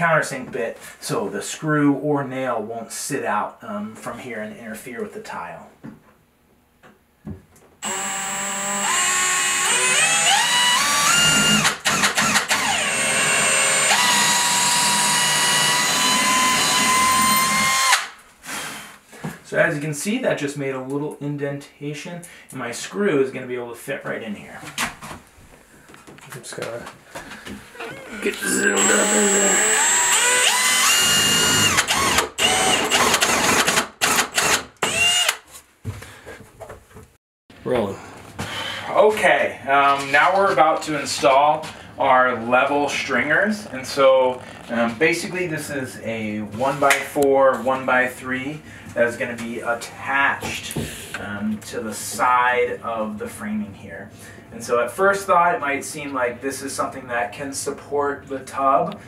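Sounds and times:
cordless drill motor whining: 0:07.8 - 0:18.1, 0:27.9 - 0:35.4.

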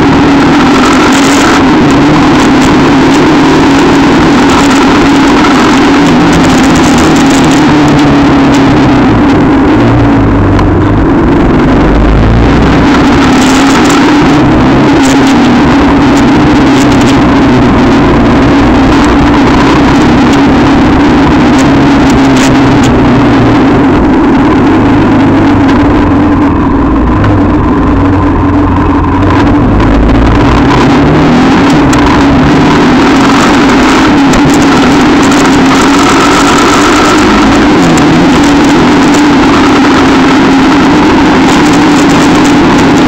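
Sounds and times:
quad bike engine revving: 0:00.0 - 0:43.0.

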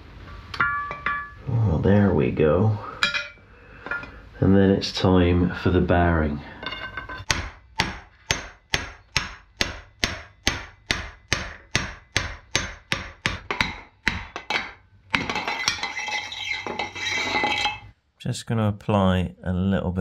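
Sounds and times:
metal-on-metal strikes: 0:00.6 - 0:01.5
continuous grinding rub: 0:15.3 - 0:17.9.

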